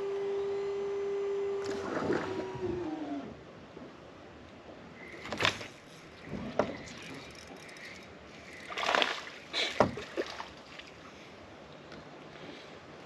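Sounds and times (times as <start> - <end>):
fish splashing at water surface: 8.6 - 10.9.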